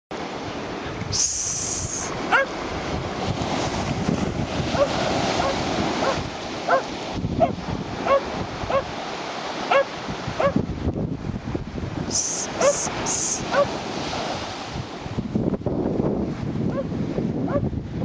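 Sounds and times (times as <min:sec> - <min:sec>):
wind on microphone: 0:00.2 - 0:18.0
surf breaking: 0:00.4 - 0:10.5
dog barking: 0:02.3 - 0:02.6, 0:04.7 - 0:08.9, 0:09.7 - 0:10.6, 0:12.5 - 0:13.8, 0:16.7 - 0:16.9.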